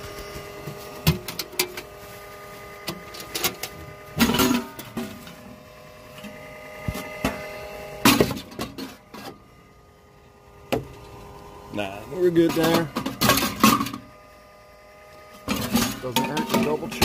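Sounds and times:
steady background hum: 0:00.0 - 0:17.0
knocks and clunks of air filter: 0:08.0 - 0:09.0, 0:10.7 - 0:11.2.

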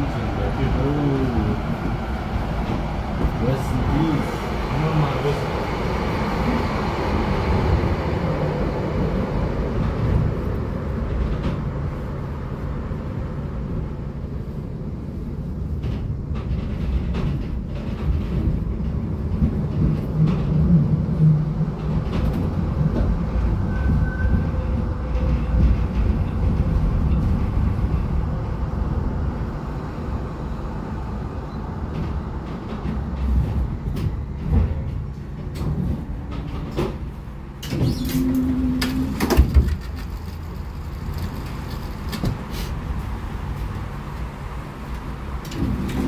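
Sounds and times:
tram running gear rumbling: 0:00.0 - 0:46.0
knocks and clatter: 0:15.7 - 0:28.4, 0:31.9 - 0:42.5.

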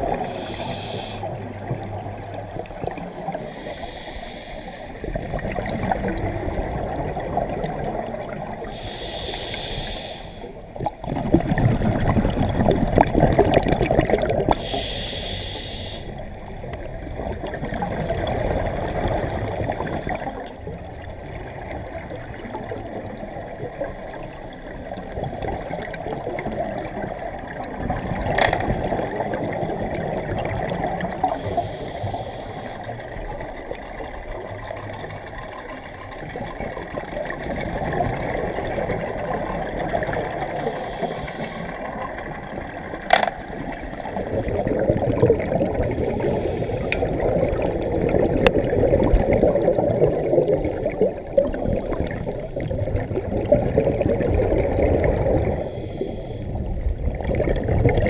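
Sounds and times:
gurgling exhaled bubbles: 0:00.0 - 0:03.8, 0:04.9 - 0:09.3, 0:10.5 - 0:15.0, 0:16.1 - 0:32.1, 0:32.8 - 0:58.0
hissing regulator inhales: 0:00.1 - 0:01.4, 0:03.1 - 0:05.1, 0:08.6 - 0:10.6, 0:14.5 - 0:16.3, 0:19.2 - 0:20.5, 0:31.2 - 0:33.0, 0:40.5 - 0:41.9, 0:45.8 - 0:48.2, 0:55.4 - 0:56.7.

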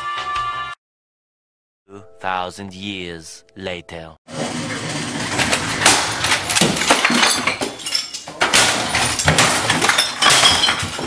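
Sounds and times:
clattering and clinking: 0:04.3 - 0:11.0
loud crashes and bangs: 0:04.3 - 0:11.0.

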